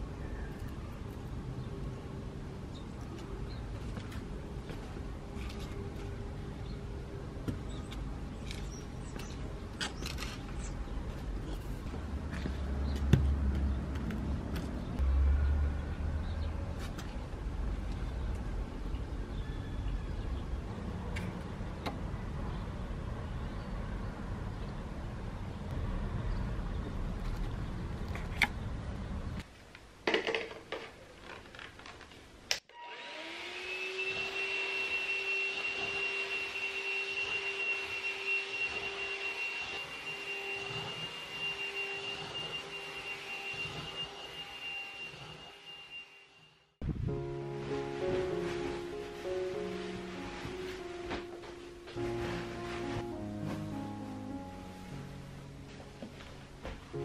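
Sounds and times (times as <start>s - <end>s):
low outdoor rumble: 10.7s - 30.0s
handheld vacuum cleaner whining: 32.7s - 46.1s.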